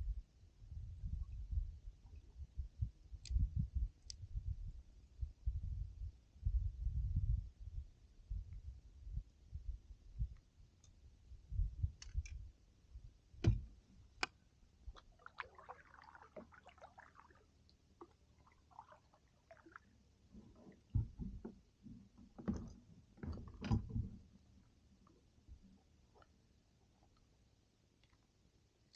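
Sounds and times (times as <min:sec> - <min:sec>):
kayak paddling knocks and thumps: 0:13.4 - 0:17.2, 0:20.3 - 0:24.4.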